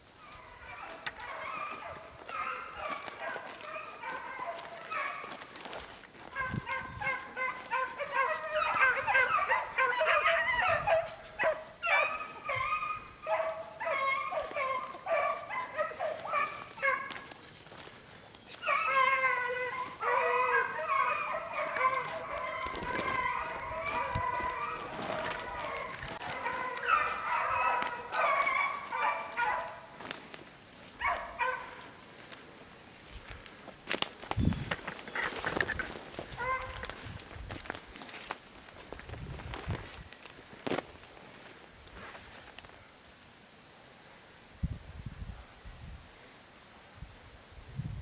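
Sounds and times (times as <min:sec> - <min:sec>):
dogs baying: 0:00.2 - 0:32.4, 0:34.7 - 0:37.0.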